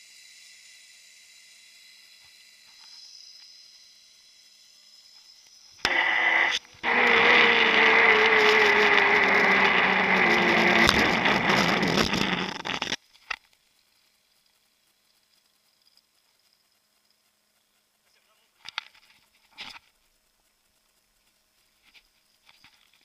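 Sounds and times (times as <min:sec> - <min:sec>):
zipline trolley rushing and whining: 0:05.9 - 0:13.0.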